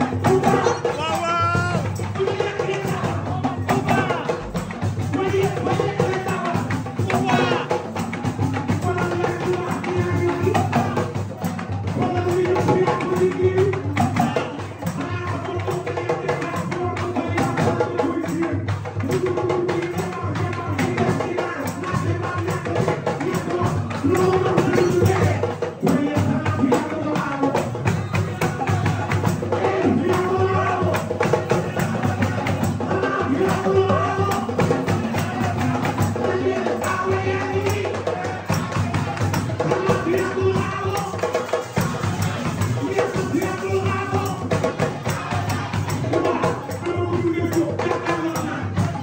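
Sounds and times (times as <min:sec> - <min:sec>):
drum strokes: 0:00.0 - 0:49.0
person singing: 0:00.0 - 0:49.0
tambourine jingles: 0:27.5 - 0:49.0.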